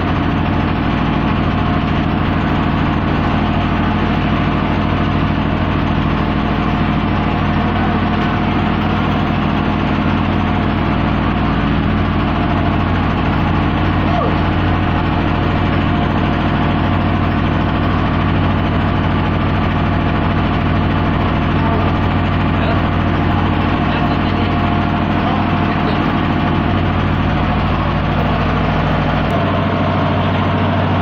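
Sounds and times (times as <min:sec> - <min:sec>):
engine droning: 0:00.0 - 0:31.0.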